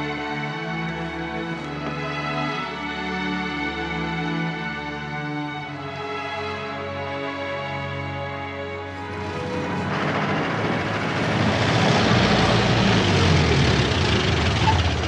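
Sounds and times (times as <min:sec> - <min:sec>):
truck engine rumble: 0:08.9 - 0:15.0.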